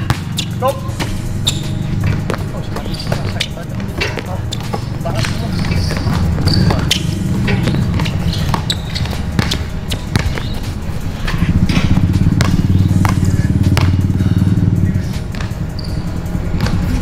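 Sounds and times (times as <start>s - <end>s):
basketball bouncing on hard court: 0.0s - 10.7s, 11.7s - 14.1s, 16.6s - 16.9s.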